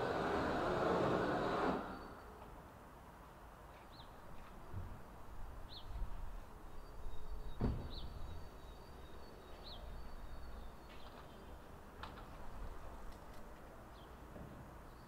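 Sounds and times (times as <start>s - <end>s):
bird chirps: 6.7s - 11.7s.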